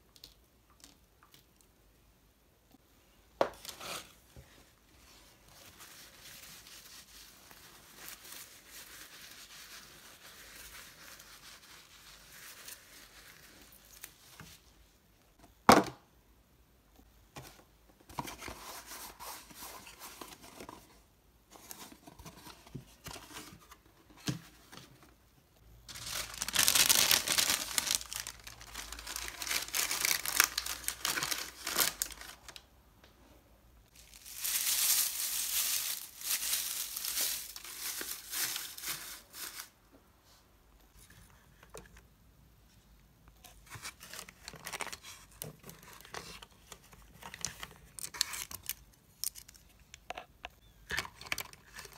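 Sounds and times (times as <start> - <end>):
paper crinkling and rustling: 25.9 - 32.6, 33.9 - 39.8, 43.4 - 49.7.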